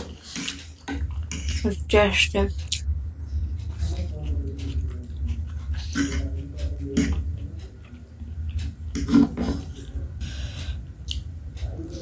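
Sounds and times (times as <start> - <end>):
person chewing: 0.0 - 1.6, 3.6 - 11.3.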